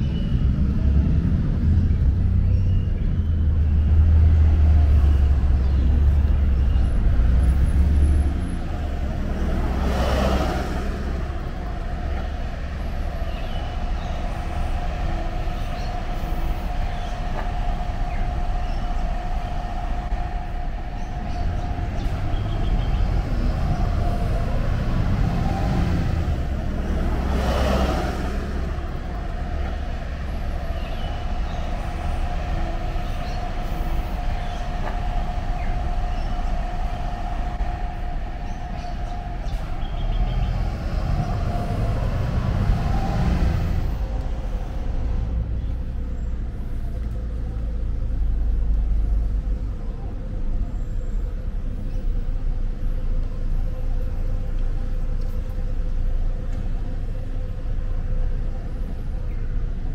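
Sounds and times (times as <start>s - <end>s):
bus engine rumble: 0.0s - 59.9s
vehicles swishing past: 0.0s - 59.9s
steady background hum: 11.0s - 27.3s, 28.2s - 59.9s.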